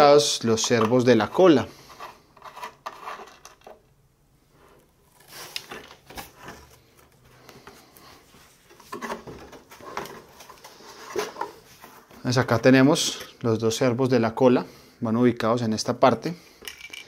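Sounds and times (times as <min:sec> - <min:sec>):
soft knocks and rustles of handling: 0:05.7 - 0:13.4.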